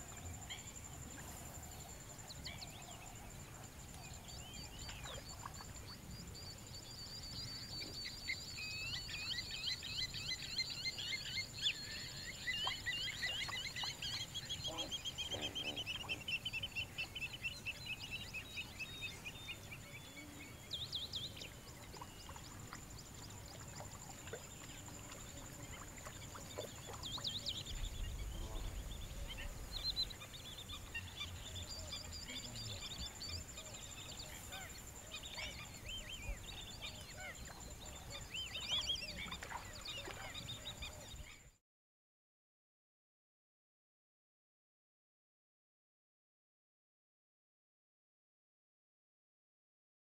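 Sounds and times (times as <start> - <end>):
birds chirping and trilling: 4.0 - 41.6.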